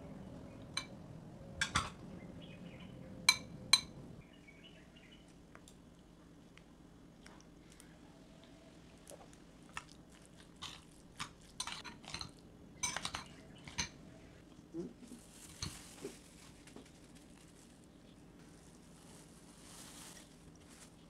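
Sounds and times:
utensil clinking against glass bowl: 3.3 - 4.0, 11.6 - 14.0.

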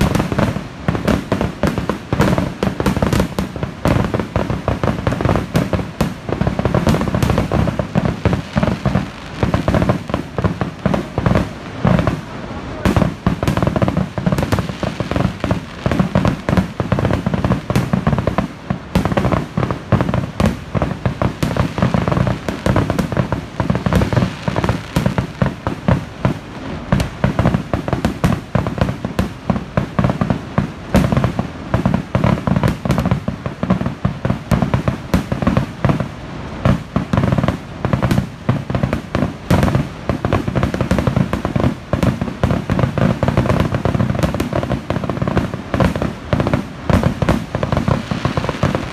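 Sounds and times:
fireworks bangs: 0.0 - 48.9.

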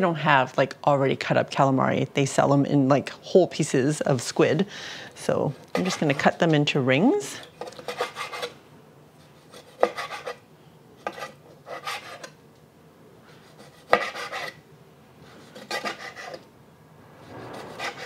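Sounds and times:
knife slicing on cutting board: 13.6 - 14.6.

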